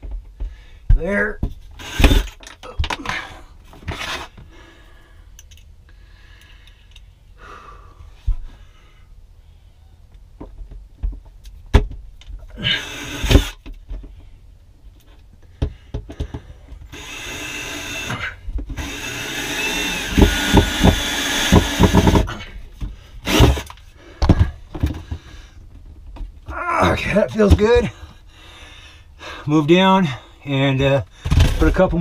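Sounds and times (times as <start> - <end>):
heavy thumps of screw tightening: 0.0 - 3.0, 15.4 - 26.6
cordless drill motor whining: 1.8 - 2.4, 12.7 - 13.6, 16.9 - 22.4, 23.2 - 23.7.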